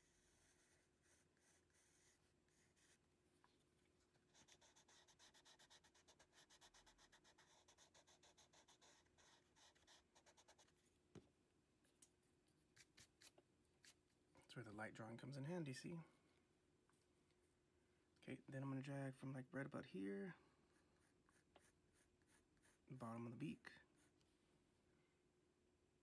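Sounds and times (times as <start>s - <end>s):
pencil strokes on paper: 0.0s - 3.1s, 4.2s - 10.8s, 21.0s - 22.9s.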